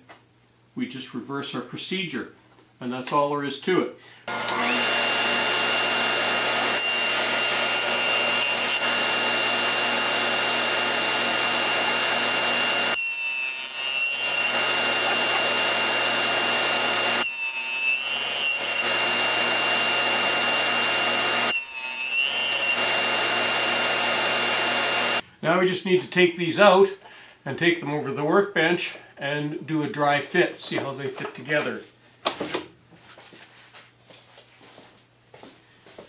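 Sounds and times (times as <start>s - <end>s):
table saw cutting wood: 4.3s - 25.2s.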